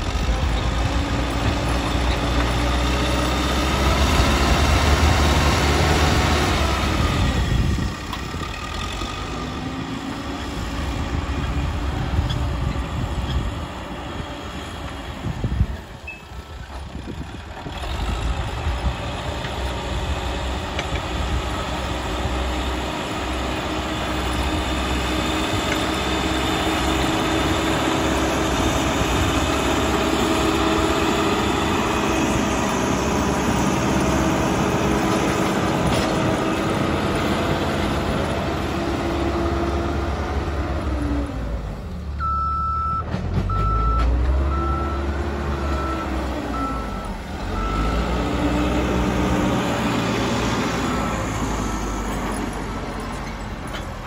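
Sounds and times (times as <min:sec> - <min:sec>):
diesel engine revving under load: 0:00.0 - 0:54.0
reversing alarm beeping: 0:42.2 - 0:48.2.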